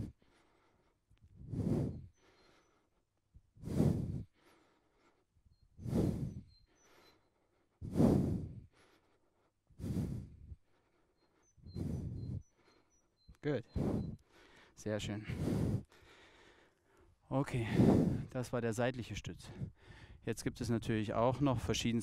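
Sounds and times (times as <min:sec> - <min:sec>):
man breathing out hard: 0:00.0 - 0:02.9, 0:03.6 - 0:05.2, 0:05.8 - 0:07.2, 0:07.8 - 0:10.6, 0:11.7 - 0:12.8, 0:13.8 - 0:18.3, 0:19.4 - 0:20.2.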